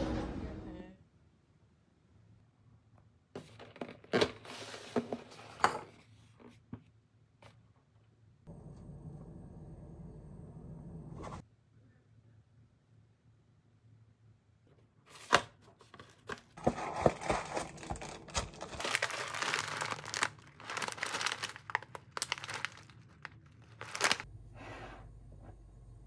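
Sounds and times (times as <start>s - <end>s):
plastic bag crinkling: 16.6s - 24.3s.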